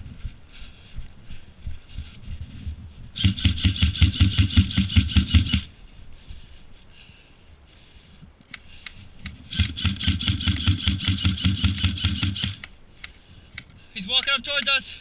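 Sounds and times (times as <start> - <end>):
airsoft rifle rapid fire: 3.2 - 5.7, 9.5 - 12.7.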